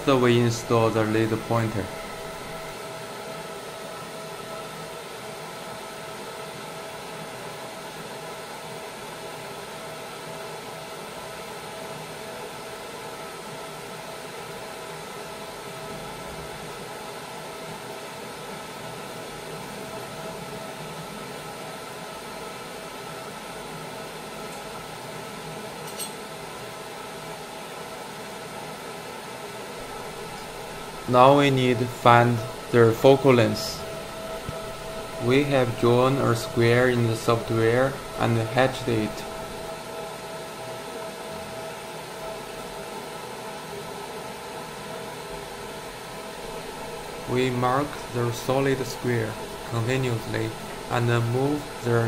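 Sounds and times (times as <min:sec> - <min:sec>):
cooling fan with faint whine: 0:00.0 - 0:52.0
small click: 0:25.8 - 0:26.2.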